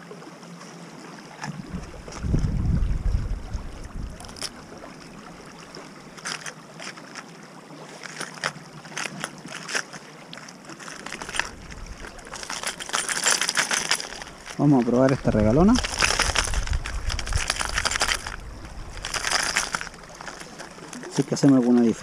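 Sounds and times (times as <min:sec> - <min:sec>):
river rushing: 0:02.9 - 0:22.0
lures rattling in plastic box: 0:10.7 - 0:22.0.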